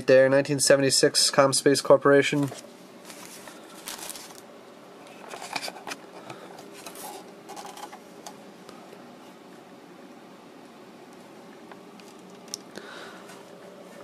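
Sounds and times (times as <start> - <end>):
paper being set down: 2.4 - 4.4
plastic case handling: 5.1 - 8.0.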